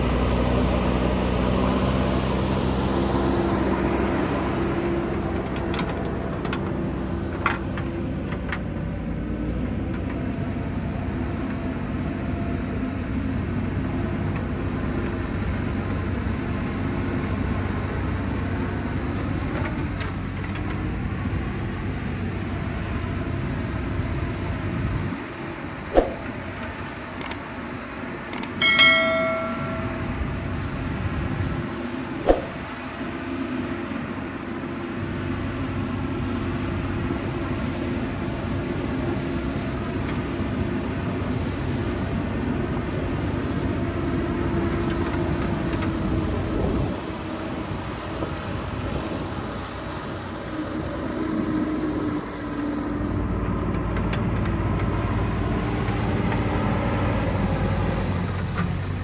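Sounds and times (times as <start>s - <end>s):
sharp click: 25.9s - 26.4s, 28.4s - 28.6s, 32.2s - 32.7s.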